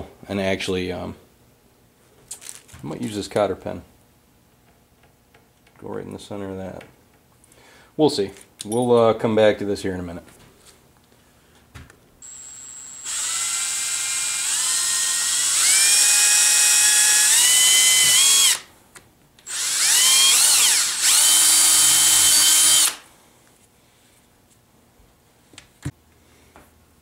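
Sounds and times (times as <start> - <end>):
cordless drill whining: 12.2 - 18.7, 19.4 - 23.0.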